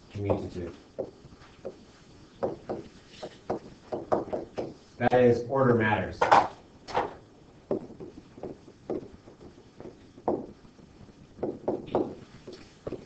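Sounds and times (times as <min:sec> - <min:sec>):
stylus tapping on touch screen: 0:07.7 - 0:10.6.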